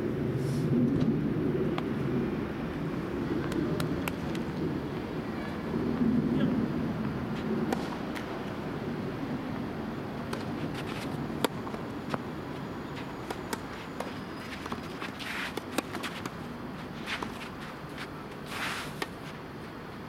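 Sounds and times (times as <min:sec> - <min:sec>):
rackets striking tennis ball: 0:07.7 - 0:08.3, 0:10.2 - 0:19.2
footsteps on court: 0:10.3 - 0:19.4
shoe scuffs on court: 0:13.0 - 0:19.4.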